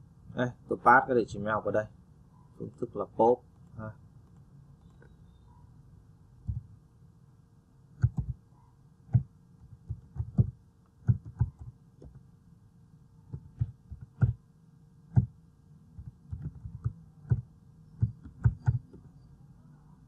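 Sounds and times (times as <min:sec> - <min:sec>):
faint steady hum: 0:00.0 - 0:20.0
keyboard typing: 0:08.0 - 0:08.4, 0:09.1 - 0:12.2, 0:13.3 - 0:14.4, 0:16.0 - 0:19.1.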